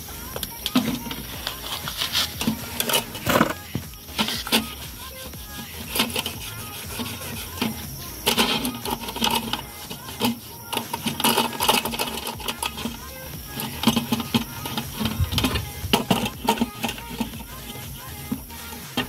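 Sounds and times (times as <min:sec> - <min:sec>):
metal lantern clinking and rattling: 0:05.6 - 0:19.0.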